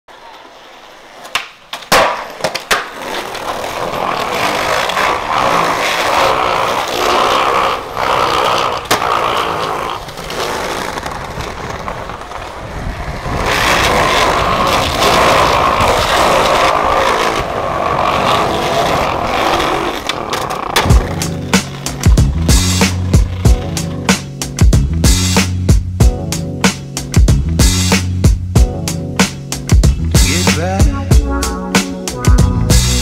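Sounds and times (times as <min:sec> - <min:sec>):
skateboard clacking on ground: 0:00.1 - 0:24.3
skateboard wheels rolling on pavement: 0:00.1 - 0:33.0.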